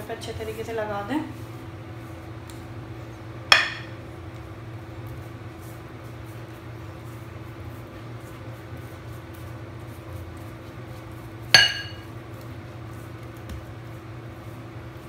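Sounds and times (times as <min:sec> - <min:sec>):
glass bowl clinking: 0:11.6 - 0:12.1.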